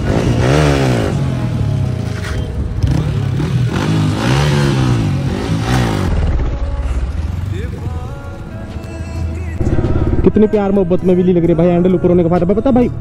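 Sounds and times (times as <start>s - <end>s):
motorcycle engine revving: 0.0s - 8.3s, 9.6s - 10.8s.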